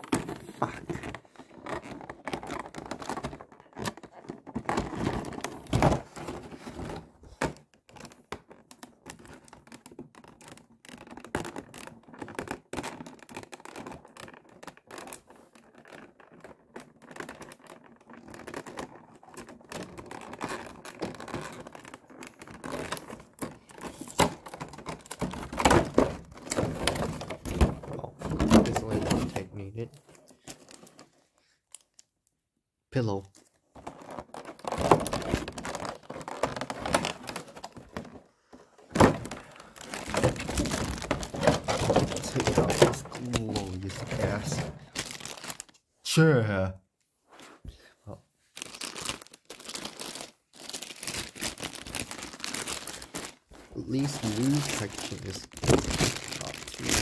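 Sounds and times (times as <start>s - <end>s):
plastic bag crinkling: 11.6s - 31.1s, 33.6s - 38.3s, 38.9s - 45.8s, 48.5s - 57.0s
plastic tray crackling and clicking: 39.0s - 45.7s.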